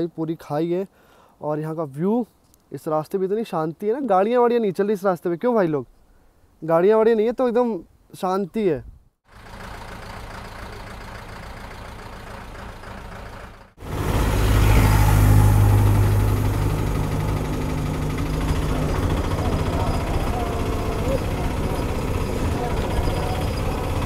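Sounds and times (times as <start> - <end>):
auto-rickshaw engine running loudly: 9.3 - 24.0.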